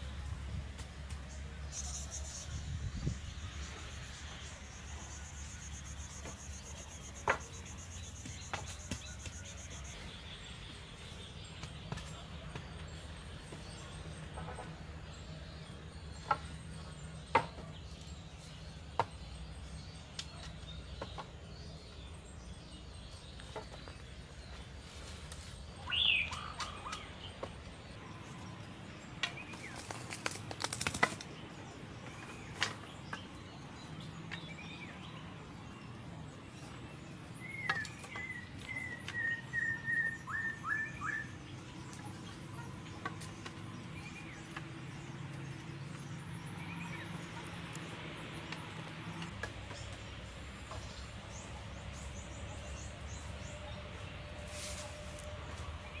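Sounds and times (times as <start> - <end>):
birds calling: 0.0 - 56.0
wooden poles clacking: 32.0 - 33.4.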